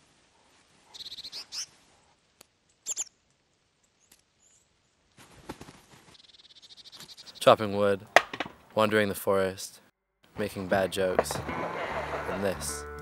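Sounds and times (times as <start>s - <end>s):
small animal chirping and trilling: 0.9s - 1.7s, 2.7s - 3.2s.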